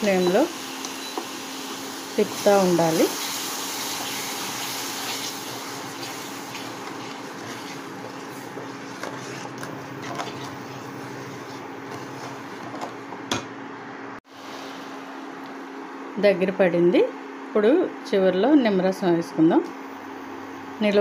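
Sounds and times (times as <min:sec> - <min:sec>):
induction cooktop hum and hiss: 0:00.0 - 0:21.0
wooden spatula tapping and scraping: 0:06.0 - 0:13.0.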